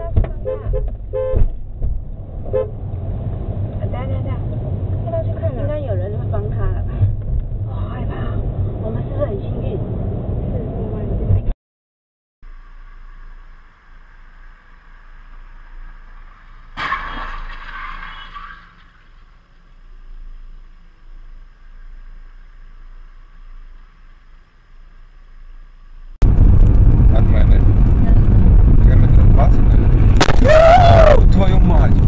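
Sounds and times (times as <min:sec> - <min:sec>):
distant traffic rumble: 0:00.0 - 0:11.5, 0:12.5 - 0:32.0
engine and road noise: 0:00.0 - 0:11.6, 0:12.4 - 0:32.0
loud crash ringing and scraping: 0:16.2 - 0:19.5.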